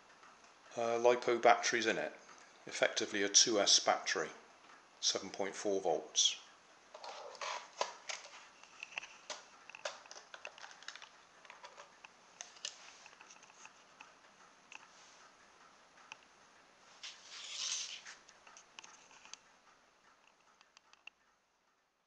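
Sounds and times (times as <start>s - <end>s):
short scraping rustle: 17.0s - 18.2s.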